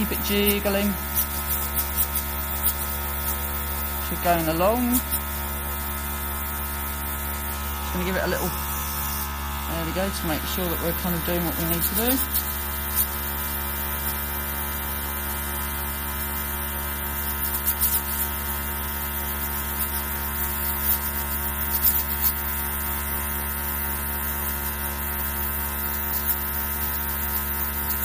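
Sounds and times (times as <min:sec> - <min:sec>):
airbrush air hiss: 0:00.0 - 0:13.6
airbrush compressor humming: 0:00.0 - 0:28.0.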